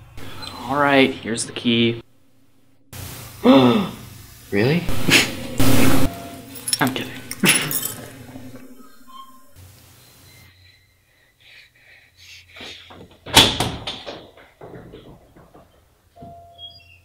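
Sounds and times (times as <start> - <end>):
door banging: 13.2 - 16.4
door knocks and rattles: 13.2 - 16.4.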